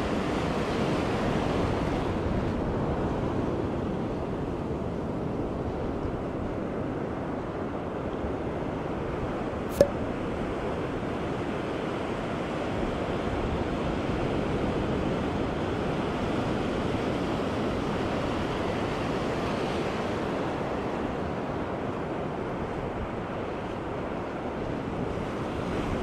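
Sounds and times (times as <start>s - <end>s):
sharp click: 9.7s - 10.0s.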